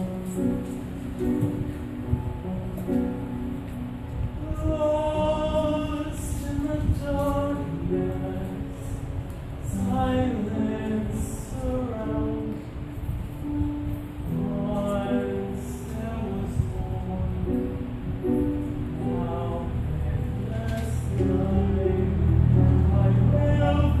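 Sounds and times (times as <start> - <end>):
grand piano: 0.0 - 24.0
man singing: 4.3 - 12.8, 14.3 - 24.0.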